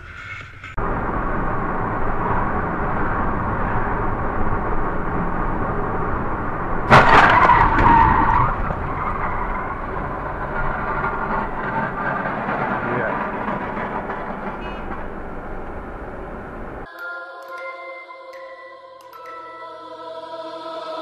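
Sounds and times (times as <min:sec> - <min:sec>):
car and road noise: 0:00.0 - 0:16.9
loud bang with ringing screech: 0:06.9 - 0:12.3.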